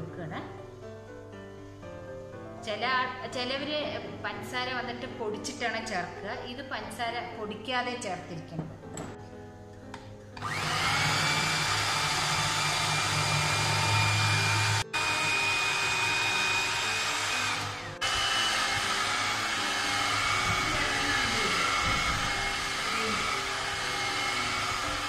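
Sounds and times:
electric mixer motor whining: 10.4s - 25.0s.

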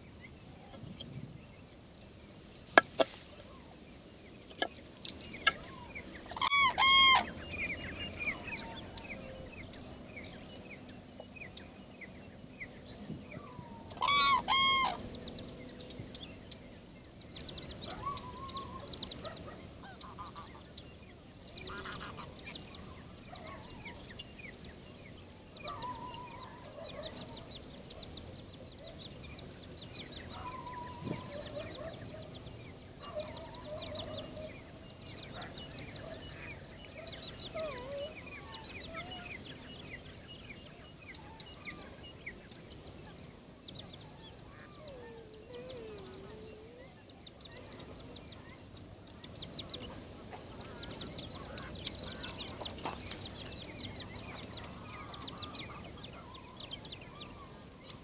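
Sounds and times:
small birds chirping: 0.0s - 58.0s
birds honking calls: 4.5s - 9.8s, 13.4s - 16.2s.

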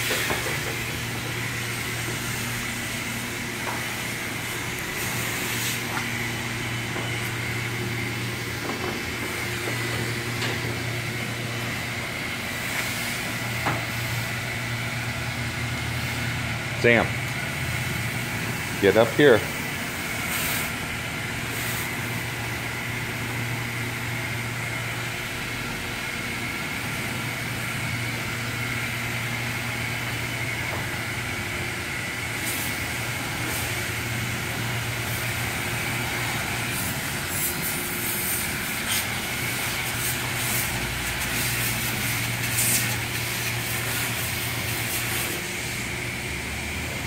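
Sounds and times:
high-pressure water spray: 19.8s - 20.8s, 21.5s - 22.2s, 35.0s - 45.4s.

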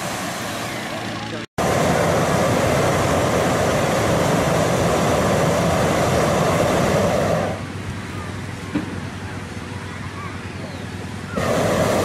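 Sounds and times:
propane burner roaring: 0.0s - 12.0s.

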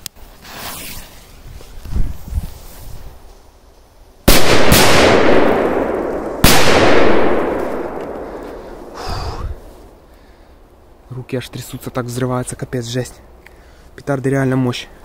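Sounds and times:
firecrackers exploding with echo: 4.3s - 9.1s.

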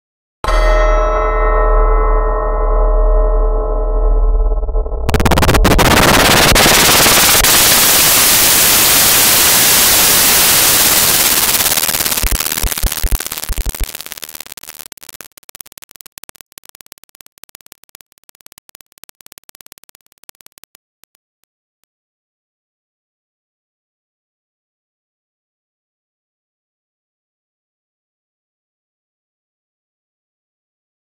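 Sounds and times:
harsh distorted noise: 4.4s - 21.2s
crackles and clicks: 4.6s - 21.5s.

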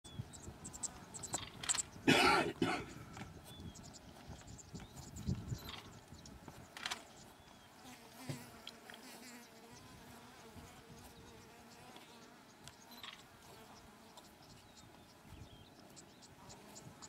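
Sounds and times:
flying insect buzzing: 6.7s - 14.4s.

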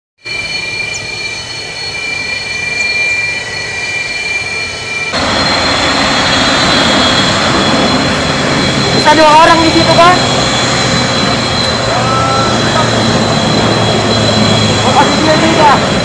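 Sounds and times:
jet engines whining: 0.2s - 16.0s.

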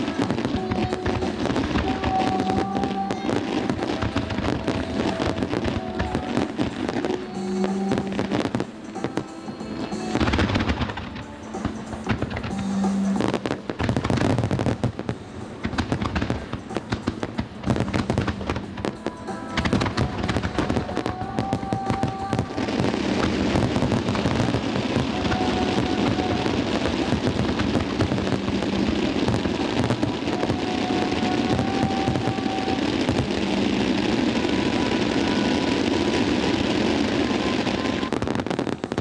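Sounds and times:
fireworks bangs and crackling: 0.0s - 39.0s.

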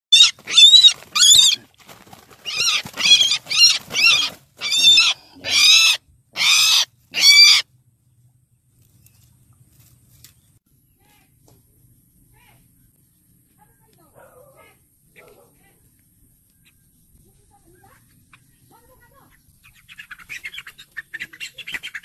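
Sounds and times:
bird harsh wavering calls: 0.1s - 1.6s, 2.4s - 7.6s.

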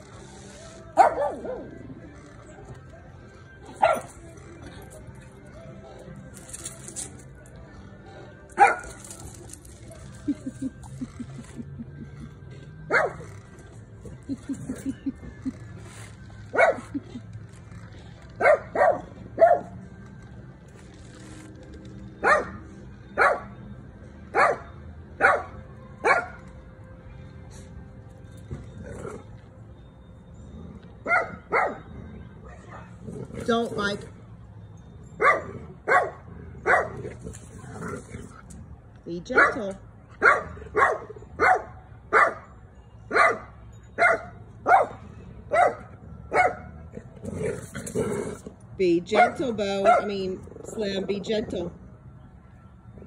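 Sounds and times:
dog barking: 12.9s - 13.2s, 18.4s - 19.7s, 22.2s - 22.6s, 23.2s - 23.5s, 24.4s - 24.6s, 25.2s - 26.4s, 31.1s - 31.8s, 35.2s - 37.0s, 39.4s - 42.4s, 43.1s - 46.7s, 49.2s - 50.2s.

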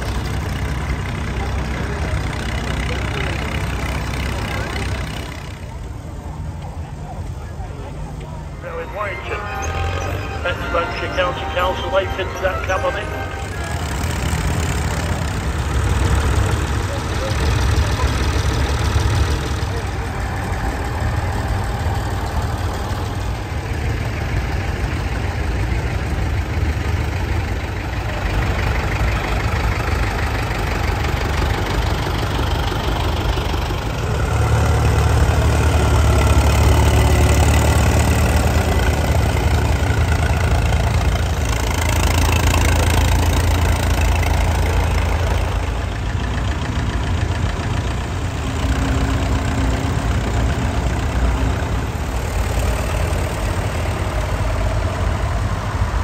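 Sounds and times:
tractor engines running: 0.0s - 56.0s.

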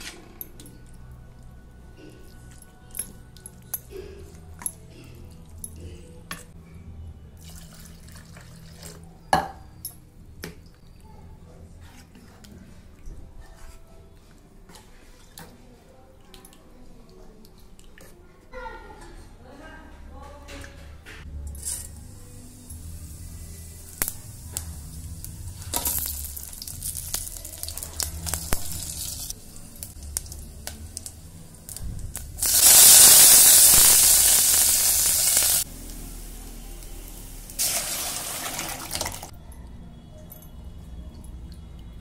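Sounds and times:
hot oil sizzling: 21.6s - 39.3s
frying seeds popping and crackling: 23.8s - 36.1s
leaves hissing in oil: 32.4s - 36.3s.

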